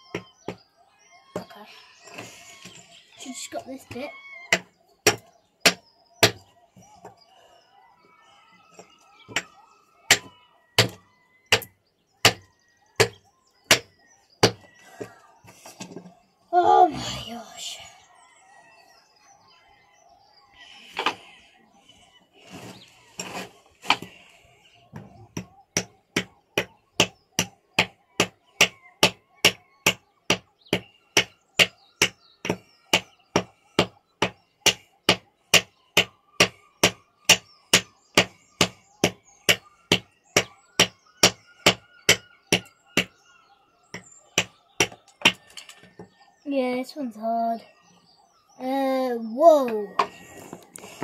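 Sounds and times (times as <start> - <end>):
hammer knocking on stone: 4.5 - 6.4, 10.1 - 15.1, 25.0 - 43.2, 43.9 - 46.0.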